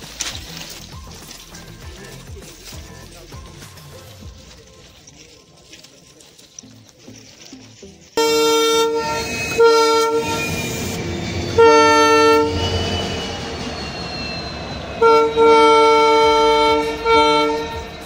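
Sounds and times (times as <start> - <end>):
locomotive engine rumble: 0.0 - 18.0
locomotive horn blasts: 8.2 - 18.0.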